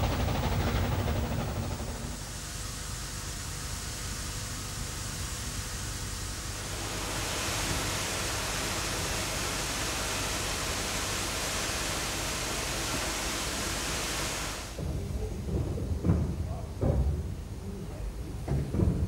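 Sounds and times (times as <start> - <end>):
steam hissing from locomotive: 0.0 - 14.8.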